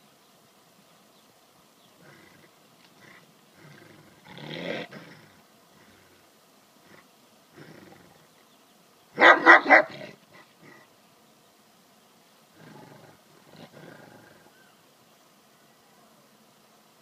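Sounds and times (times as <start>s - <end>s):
dog growling: 2.0s - 6.2s, 7.6s - 8.2s, 12.6s - 14.5s
large dog barking: 9.2s - 10.2s.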